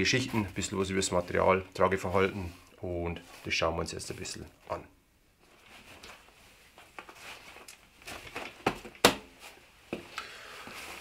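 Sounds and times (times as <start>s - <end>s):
webbing and clothing rustling: 5.4s - 11.0s.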